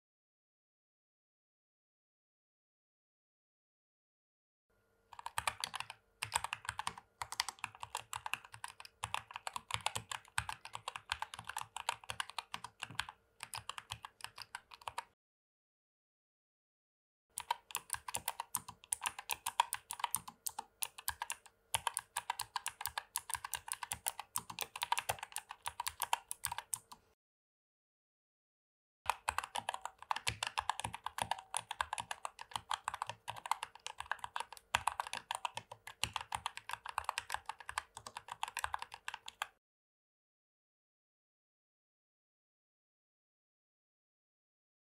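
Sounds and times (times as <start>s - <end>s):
fast mechanical keyboard typing: 5.2s - 15.1s, 17.4s - 27.0s, 29.1s - 39.6s.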